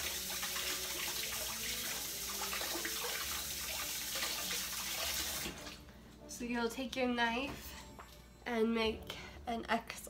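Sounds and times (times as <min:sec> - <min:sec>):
tap running into sink: 0:04.2 - 0:05.8.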